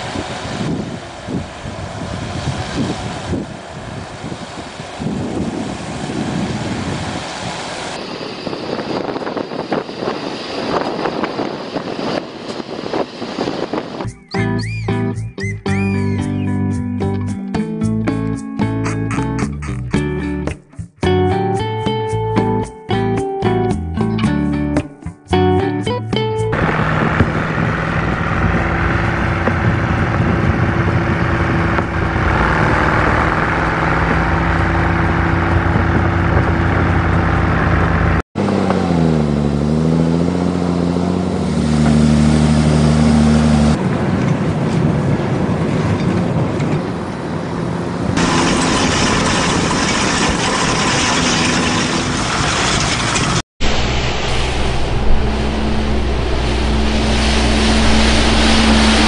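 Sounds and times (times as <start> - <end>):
tractor engine changing pitch: 8.0 - 16.8, 26.5 - 43.8, 47.8 - 59.0
heavy diesel engines working: 26.5 - 59.0.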